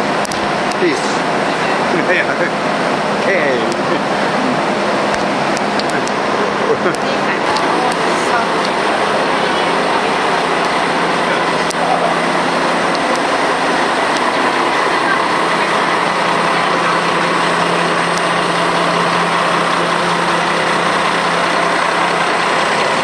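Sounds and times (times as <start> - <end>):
constant wash of noise: 0.0 - 23.0
diesel engine idling: 0.0 - 23.0.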